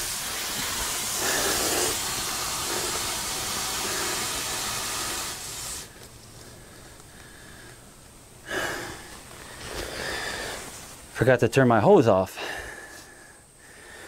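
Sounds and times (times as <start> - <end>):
water rushing out of drain valve: 0.0 - 5.9.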